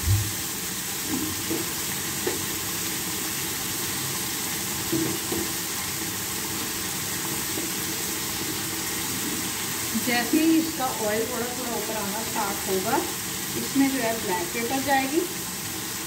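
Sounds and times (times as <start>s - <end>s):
gravy sizzling and bubbling: 0.0s - 16.0s
soft pops of frying: 0.1s - 2.9s, 4.7s - 6.3s.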